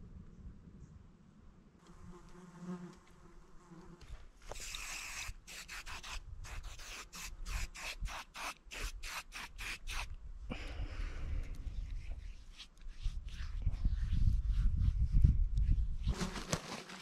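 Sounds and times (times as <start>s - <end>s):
aerosol spray hissing: 4.5s - 10.1s.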